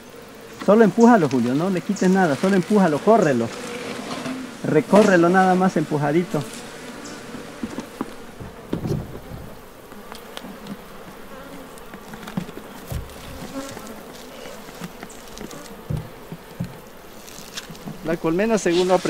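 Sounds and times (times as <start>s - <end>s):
bee colony buzzing: 0.0s - 19.0s
hand thumping hive box: 6.2s - 18.6s.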